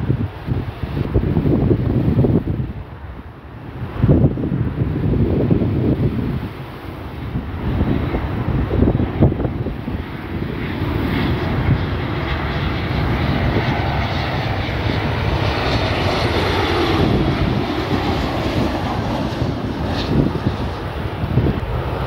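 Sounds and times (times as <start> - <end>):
jet engines rushing drone: 0.0 - 22.0.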